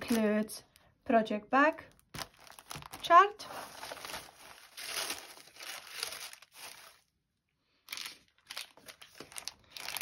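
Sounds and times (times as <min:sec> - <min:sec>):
paper rustling and crinkling: 0:02.0 - 0:07.1, 0:07.9 - 0:10.0.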